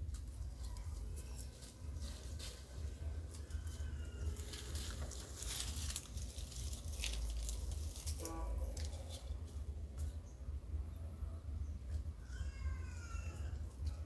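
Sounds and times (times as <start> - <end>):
dry leaves rustling and crackling: 0.0 - 10.3
steady low rumble: 0.0 - 14.0.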